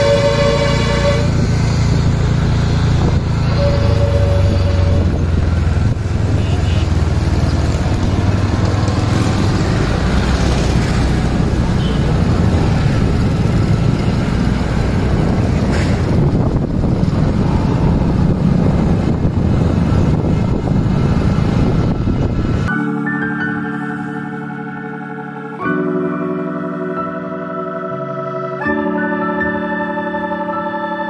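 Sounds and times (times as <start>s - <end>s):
vehicle engine and road noise: 0.0s - 28.6s
low rumble: 12.2s - 22.7s.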